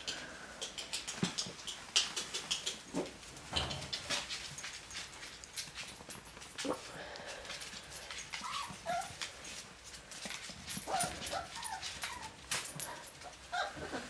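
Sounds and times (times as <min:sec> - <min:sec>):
clicks and taps: 0:00.0 - 0:02.9
puppies whimpering and yipping: 0:08.3 - 0:09.4, 0:10.8 - 0:14.0.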